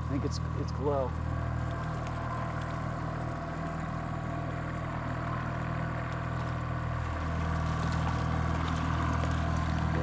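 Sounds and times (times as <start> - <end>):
outboard motor running: 0.0 - 10.0.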